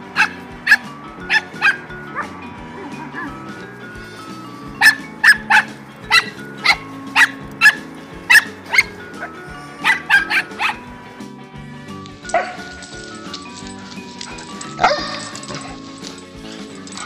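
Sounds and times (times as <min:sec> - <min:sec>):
background music: 0:00.0 - 0:17.0
dog barking sharply: 0:00.2 - 0:02.3, 0:04.8 - 0:10.8.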